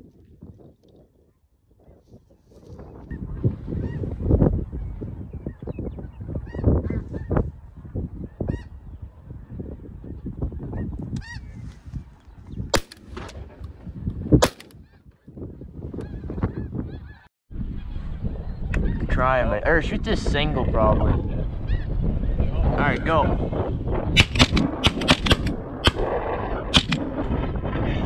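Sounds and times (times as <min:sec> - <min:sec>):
sharp bangs: 0:14.4 - 0:14.8.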